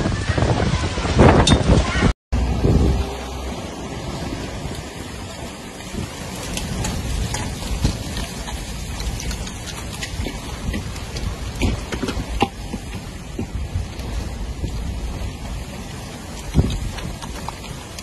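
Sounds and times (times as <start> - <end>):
heavy rain: 0.0 - 18.0
hailstones hitting ground: 4.5 - 18.0.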